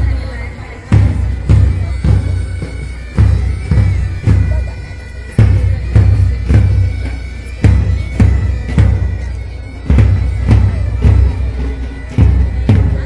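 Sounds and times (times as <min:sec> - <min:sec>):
bagpipes playing: 0:00.0 - 0:13.0
side drums: 0:00.0 - 0:13.0
bass drum beats: 0:12.1 - 0:13.0.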